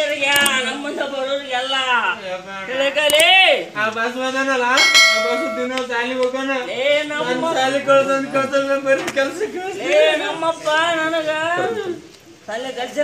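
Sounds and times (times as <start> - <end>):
metallic bell strike: 4.8 - 5.8.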